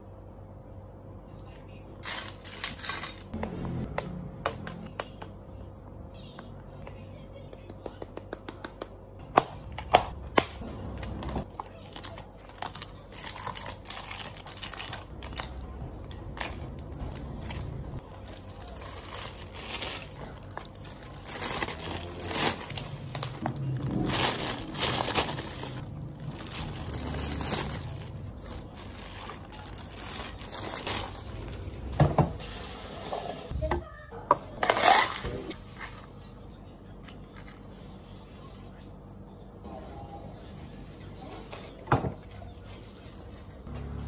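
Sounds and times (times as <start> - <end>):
plastic bags crinkling: 11.1 - 31.9.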